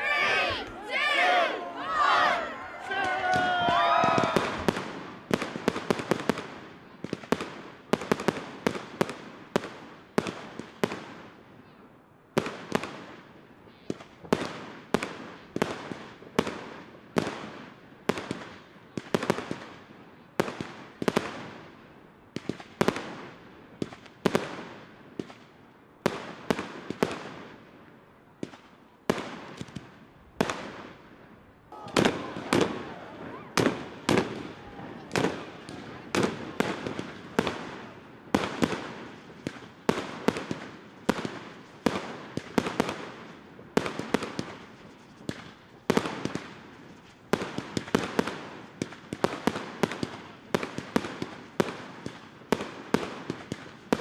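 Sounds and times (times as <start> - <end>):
spectators' voices: 0.0 - 4.7, 31.7 - 37.2
fireworks bangs: 0.0 - 11.2, 31.7 - 54.0.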